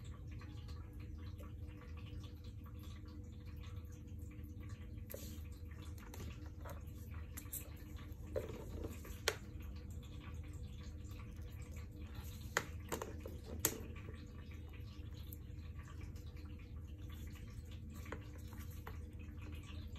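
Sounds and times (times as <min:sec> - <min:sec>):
low room hum: 0:00.0 - 0:19.9.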